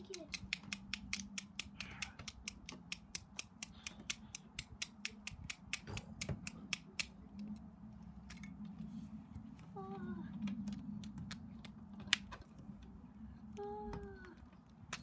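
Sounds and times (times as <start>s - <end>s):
low hum: 0.4s - 15.0s.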